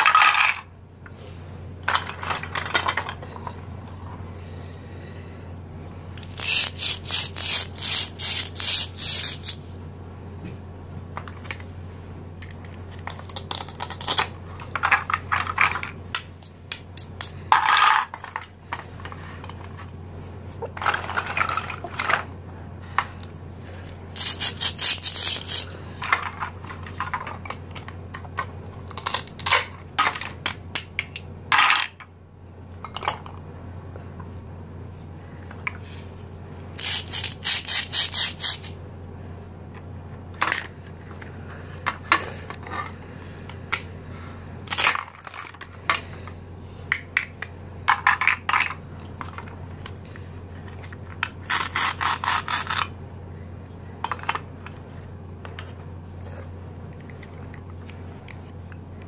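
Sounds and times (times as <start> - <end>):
steady low hum: 0.0 - 59.0
hard plastic pieces clicking: 6.2 - 9.6
velcro ripping: 6.2 - 9.6, 24.1 - 25.7, 36.8 - 38.8, 51.4 - 52.9.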